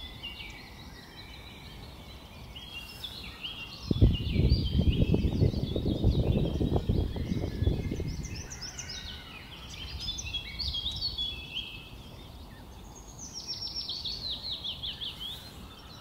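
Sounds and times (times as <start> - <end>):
songbirds chirping and trilling: 0.0 - 16.0
wind rumble on microphone: 3.7 - 12.4.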